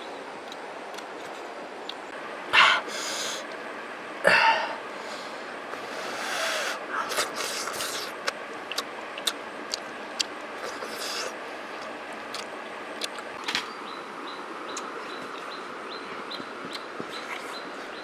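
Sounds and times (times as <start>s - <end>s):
steady background hiss: 0.0s - 18.0s
man eating mouth sounds: 5.8s - 13.4s.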